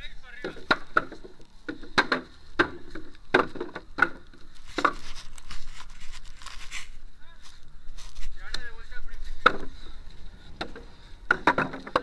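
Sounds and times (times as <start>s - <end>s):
hammer knocking on wooden blocks: 0.4s - 5.0s, 10.6s - 12.0s.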